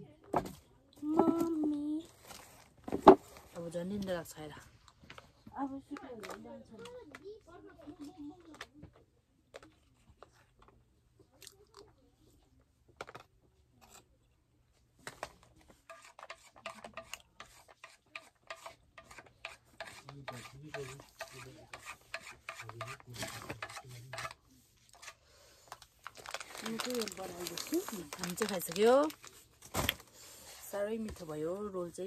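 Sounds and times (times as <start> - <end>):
spoon scraping foil tray: 15.8 - 25.2.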